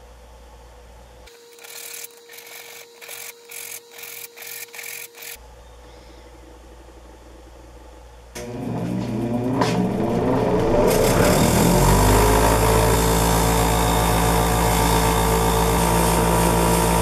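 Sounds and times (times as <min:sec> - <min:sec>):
metal file scraping strokes: 0:01.3 - 0:05.4.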